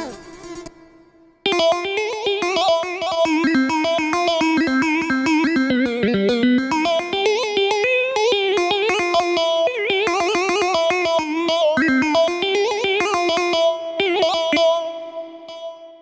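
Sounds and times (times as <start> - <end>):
keyboard guitar-like lead melody: 0.0 - 16.0
rhythmic keyboard accompaniment: 0.0 - 16.0.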